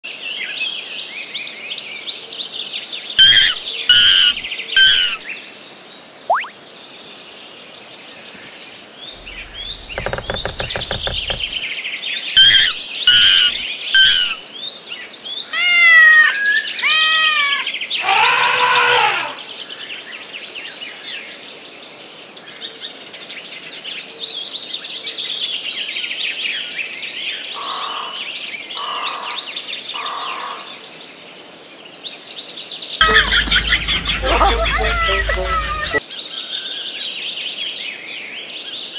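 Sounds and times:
birds chirping and singing: 3.2s - 5.2s, 9.2s - 11.6s, 33.0s - 36.0s
sharp animal calls: 3.2s - 5.2s, 9.2s - 11.6s, 12.4s - 14.4s, 33.0s - 36.0s
low buzzing: 9.2s - 11.6s
arching falling cries: 33.0s - 36.0s.

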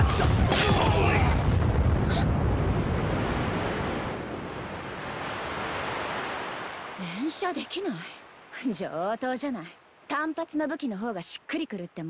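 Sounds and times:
explosion blast: 0.0s - 4.7s.

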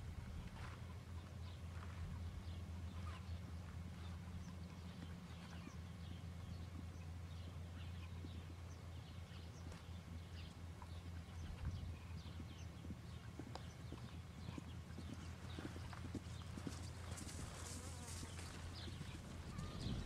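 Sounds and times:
horse hoofbeats on soft ground: 9.3s - 20.0s.

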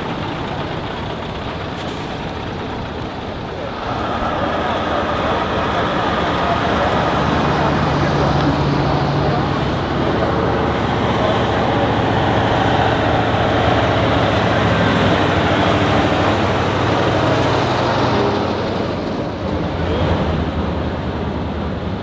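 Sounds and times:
truck diesel engine running: 0.0s - 22.0s.

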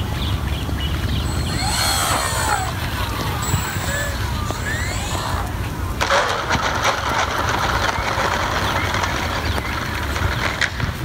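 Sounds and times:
wind rumble on microphone: 0.0s - 11.0s
model airplane motor whirring: 1.0s - 5.8s.

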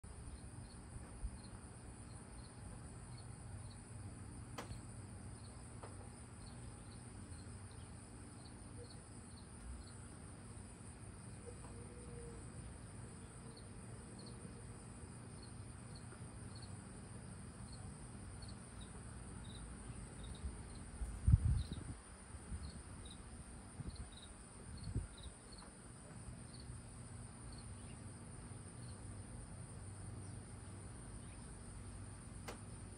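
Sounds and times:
cricket chirping: 0.1s - 32.9s
low wind rumble: 20.2s - 25.4s.

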